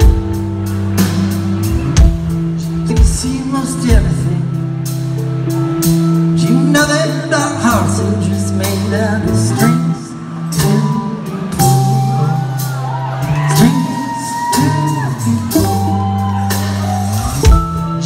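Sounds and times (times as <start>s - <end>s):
live rock band playing: 0.0s - 18.0s
man singing: 2.6s - 4.7s, 6.3s - 16.4s.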